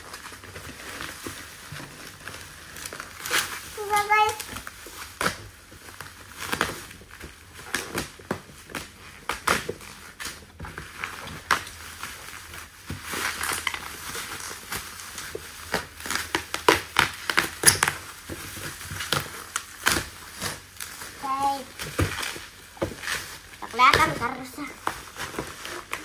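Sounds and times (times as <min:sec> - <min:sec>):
bubble wrap crinkling: 0:00.0 - 0:26.0.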